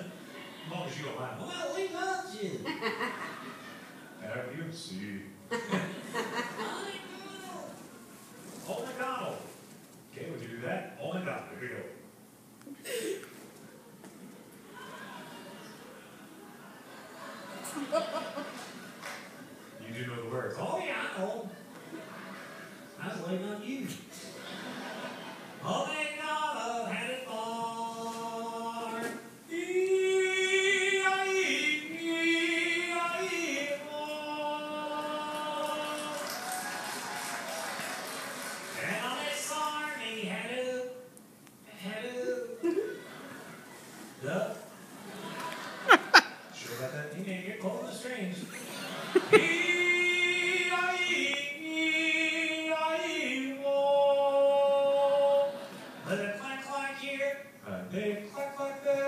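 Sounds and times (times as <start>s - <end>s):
man singing unaccompanied: 25.6s - 36.3s, 49.2s - 55.6s.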